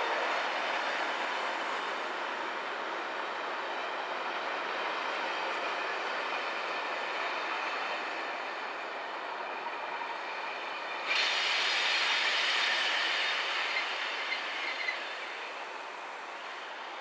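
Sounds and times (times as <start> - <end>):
train wheels rumbling on rails: 0.0 - 17.0
wheels squealing on rails: 0.0 - 17.0.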